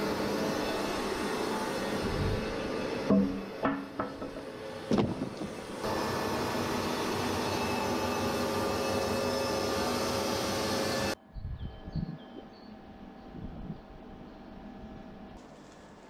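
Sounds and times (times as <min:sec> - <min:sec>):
band sawmill droning: 0:00.0 - 0:11.2
knocks: 0:03.1 - 0:05.4.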